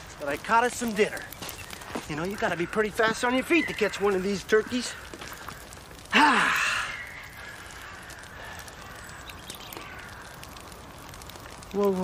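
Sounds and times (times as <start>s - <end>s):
campfire crackling: 0.0s - 12.0s
outdoor background hiss: 0.0s - 12.0s.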